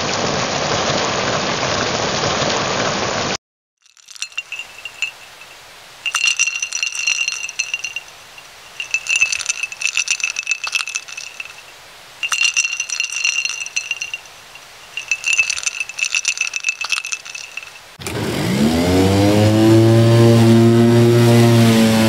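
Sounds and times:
ice cubes clinking in a glass: 0:03.8 - 0:18.0.

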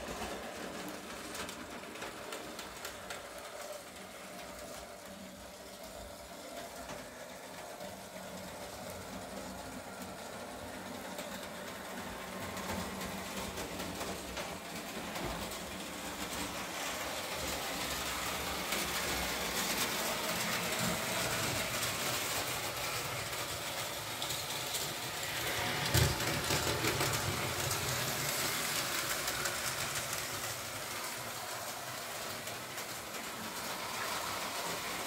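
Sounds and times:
model train clicks on track: 0:00.1 - 0:05.2.

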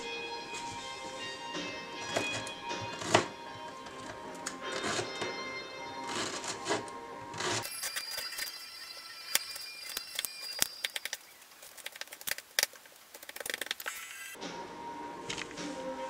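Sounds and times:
background music: 0:00.0 - 0:11.2, 0:14.4 - 0:16.0.

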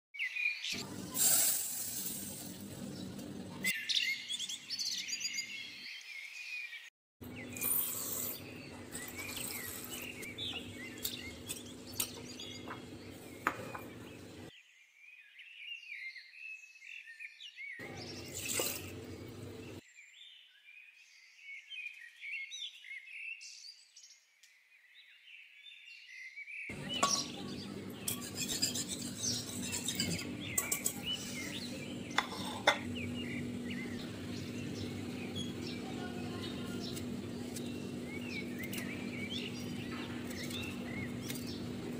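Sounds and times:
small birds chirping: 0:02.2 - 0:41.9
whisk clattering against metal pot: 0:26.8 - 0:32.8.

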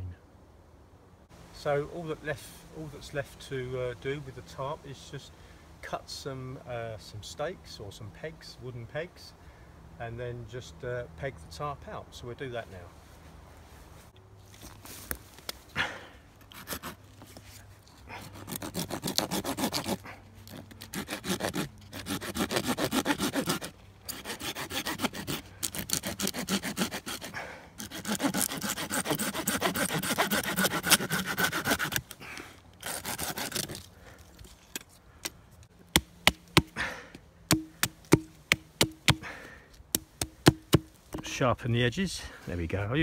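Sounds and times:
saw rasping through wood: 0:16.5 - 0:17.0, 0:18.0 - 0:33.9, 0:37.5 - 0:39.3, 0:40.2 - 0:40.9
blade chopping knocks on wood: 0:37.5 - 0:39.2, 0:40.0 - 0:40.9.

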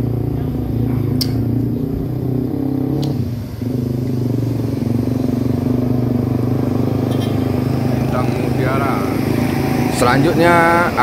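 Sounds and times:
diesel coach engine humming: 0:00.0 - 0:11.0.

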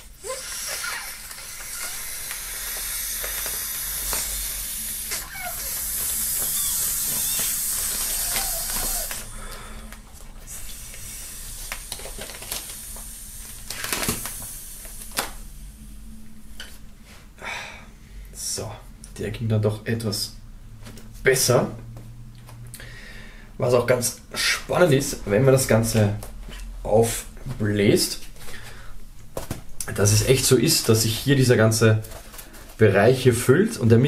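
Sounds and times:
air rushing hiss: 0:00.2 - 0:09.8, 0:10.5 - 0:16.1
plastic crackling: 0:11.5 - 0:15.4.

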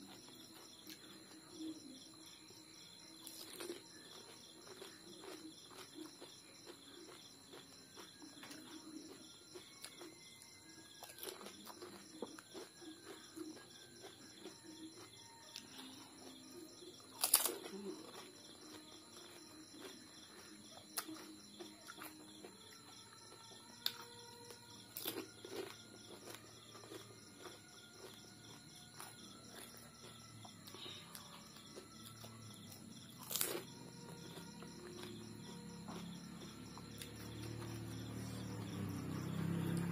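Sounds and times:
insects and birds chirping: 0:00.0 - 0:39.9
crisp shells cracking and crunching: 0:17.2 - 0:17.8.

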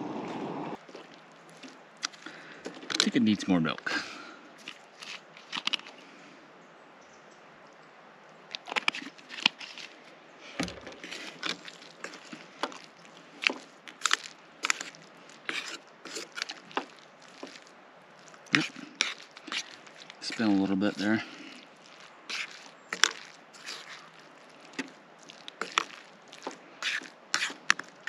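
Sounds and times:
plastic spork scraping metal pot: 0:15.5 - 0:16.8, 0:18.5 - 0:21.1, 0:26.8 - 0:27.9.

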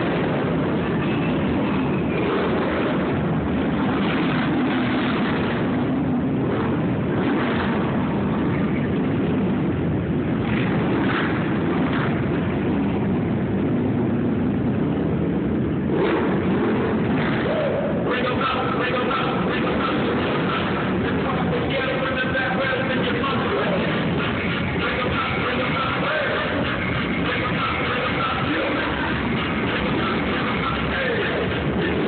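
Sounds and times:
crowd din: 0:14.9 - 0:32.0.

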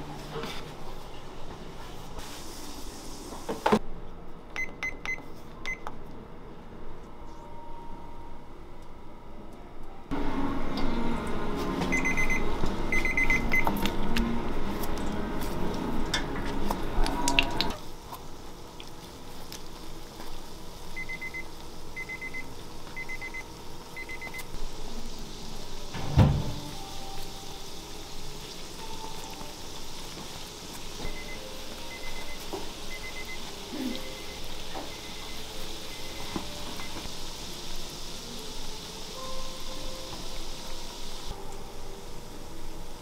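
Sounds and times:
oil sizzling and crackling: 0:12.4 - 0:41.4.

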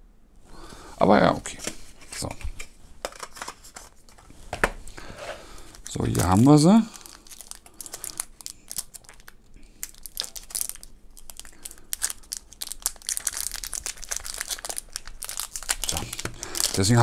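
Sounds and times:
plastic film crinkling: 0:05.5 - 0:17.0.

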